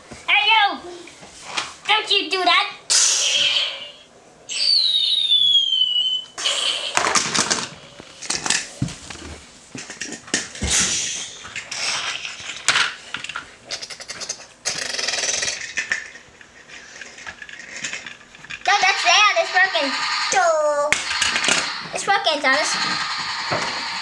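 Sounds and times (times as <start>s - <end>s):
high whistle falling in pitch: 4.6s - 6.4s
hissy sputtering noise bursts: 18.7s - 24.0s.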